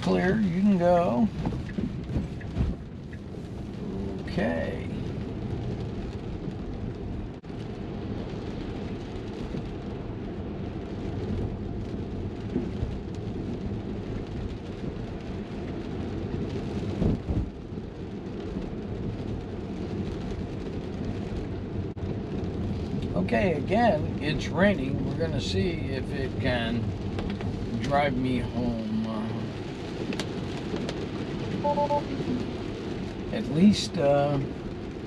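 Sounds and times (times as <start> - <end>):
rain on car: 0.0 - 35.0
tyres rumbling on wet road: 0.0 - 35.0.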